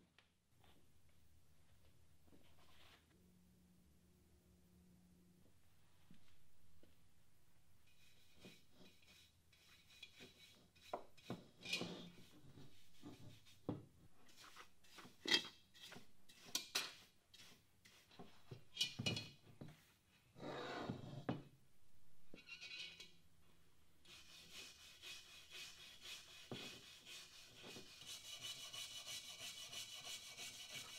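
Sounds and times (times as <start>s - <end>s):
bristle brush scrubbing iron pot: 7.8s - 20.0s, 24.0s - 30.9s.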